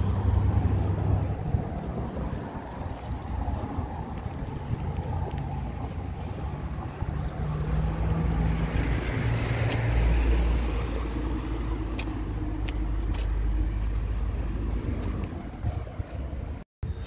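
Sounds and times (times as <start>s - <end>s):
car passing: 0.0s - 16.3s
wind rumble on microphone: 0.0s - 17.0s.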